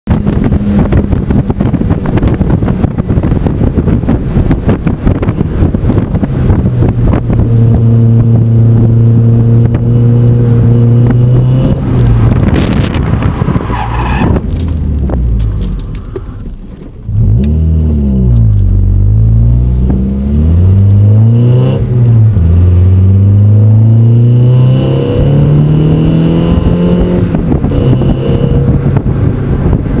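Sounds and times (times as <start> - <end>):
car engine revving: 0.1 - 30.0
tyres skidding: 10.4 - 18.4.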